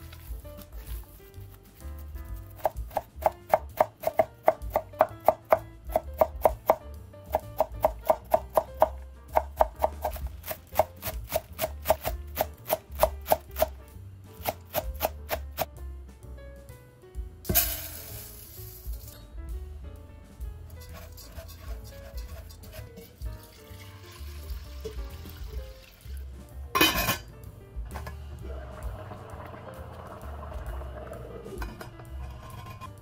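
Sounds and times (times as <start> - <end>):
knife chopping on wooden board: 2.6 - 13.8, 14.4 - 15.7.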